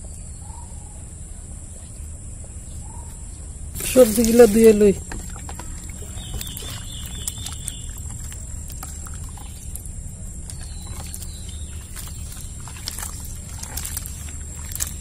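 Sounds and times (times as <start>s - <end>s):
water sloshing in a bowl: 3.8s - 15.0s.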